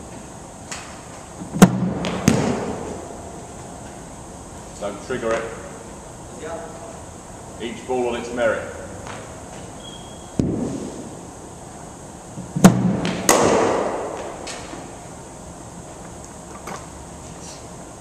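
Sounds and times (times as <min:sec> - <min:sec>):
ball cracking off bat: 0:12.7 - 0:14.5.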